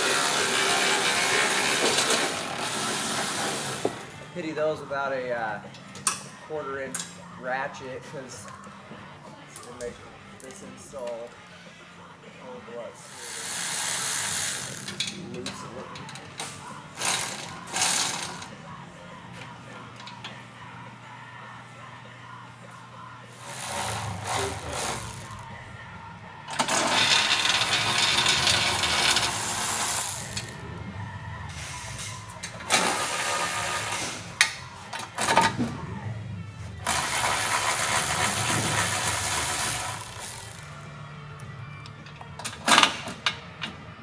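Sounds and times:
power ratchet spinning bolts: 13.1 - 15.2, 17.0 - 18.5, 23.4 - 25.4, 26.6 - 30.6, 36.8 - 40.8.

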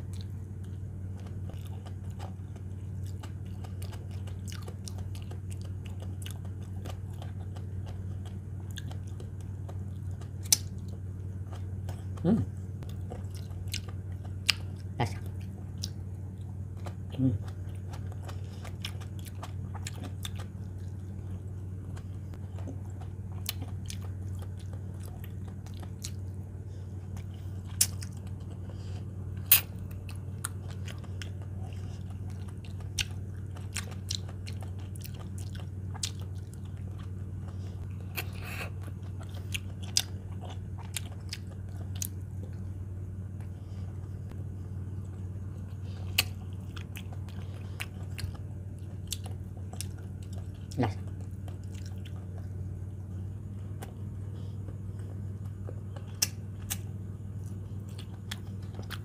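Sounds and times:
chewing and crunching: 0.0 - 59.0
steady low hum: 0.0 - 59.0.

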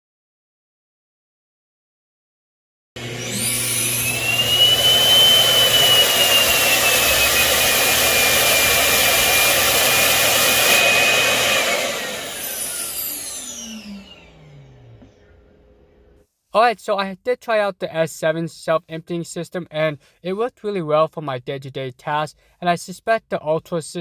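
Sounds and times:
suction motor whining: 3.0 - 15.6.

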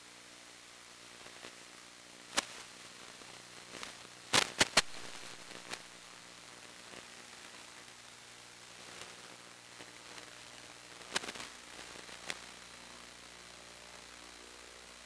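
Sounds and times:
static hiss: 0.0 - 15.0
faint low hum: 4.9 - 15.0.

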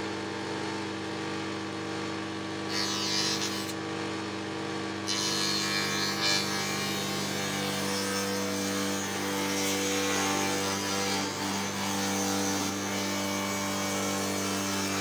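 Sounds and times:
cutter shaping wood: 2.7 - 3.8, 5.0 - 15.0.

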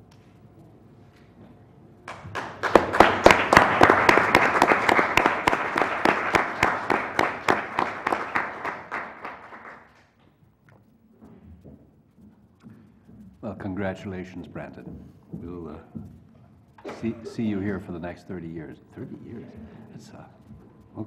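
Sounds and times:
group of people applauding: 2.1 - 10.2.

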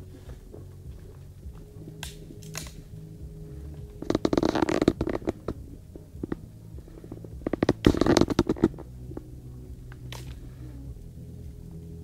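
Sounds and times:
faint low hum: 0.0 - 12.0
microphone handling rustling: 3.8 - 9.3.

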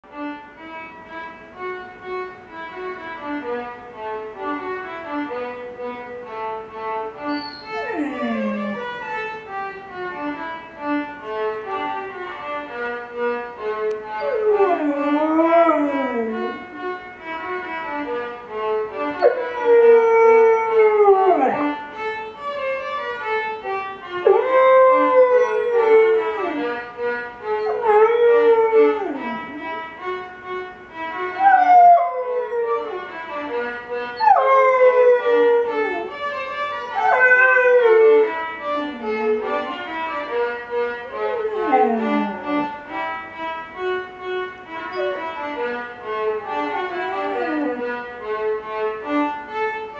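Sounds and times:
violin music: 0.0 - 49.9
puppy howling: 7.3 - 9.4, 14.2 - 16.9, 19.1 - 21.8, 24.1 - 29.8, 31.3 - 42.8, 44.9 - 48.1.

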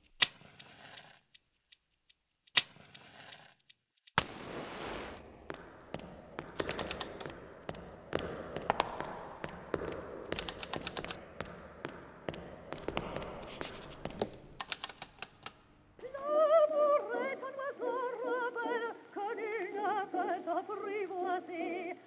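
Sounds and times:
person singing with vibrato: 16.0 - 22.0.

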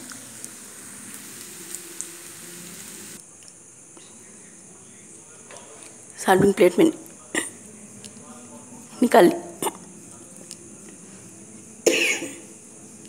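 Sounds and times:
pasta sizzling in a pan: 0.0 - 3.2.

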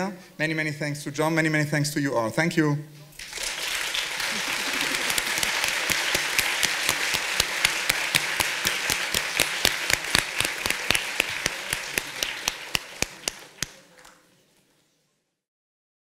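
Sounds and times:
close hands clapping sharply: 3.2 - 14.2
large audience applauding: 3.2 - 14.2.

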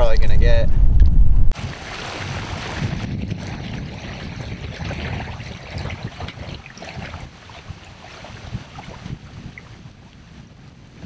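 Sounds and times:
wind buffeting microphone: 0.0 - 11.0
river water trickling: 1.6 - 10.3.

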